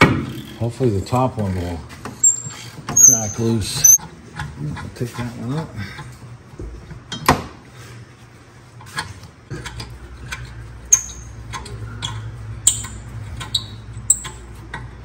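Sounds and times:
short high-pitched squeaks: 2.2s - 4.0s, 10.9s - 14.4s
ratchet clicking: 10.3s - 14.9s.

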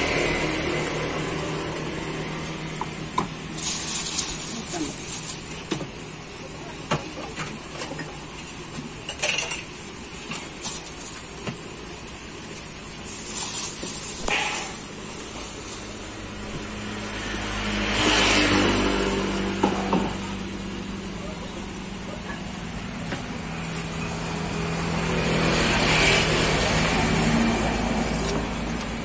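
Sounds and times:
vehicle passing by: 16.1s - 21.5s, 23.7s - 29.0s.

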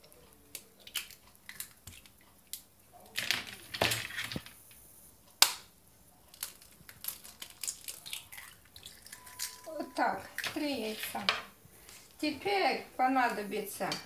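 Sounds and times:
eggshells cracking: 0.0s - 4.5s, 5.4s - 11.3s.

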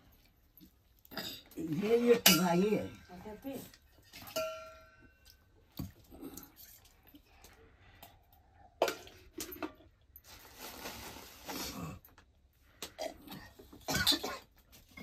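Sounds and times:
dishes clinking and knocking: 4.2s - 5.0s
rustling: 10.2s - 11.8s.

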